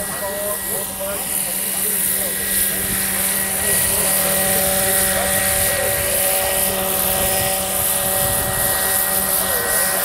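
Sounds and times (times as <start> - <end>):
model helicopter hovering: 0.0 - 10.0.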